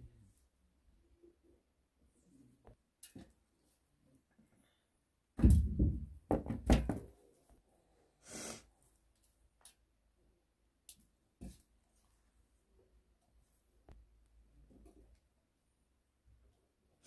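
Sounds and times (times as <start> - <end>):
heavy knocks and thumps: 5.4 - 7.1.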